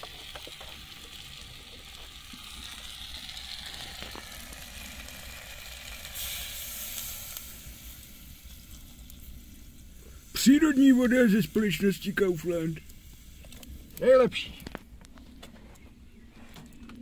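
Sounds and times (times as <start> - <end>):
food frying with sizzle: 0.0 - 14.8.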